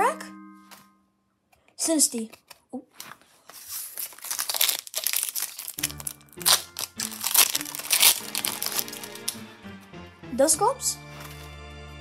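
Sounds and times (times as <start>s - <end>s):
background music with low notes: 0.0s - 1.2s, 5.6s - 12.0s
foil wrapper crinkling and tearing: 2.3s - 9.4s.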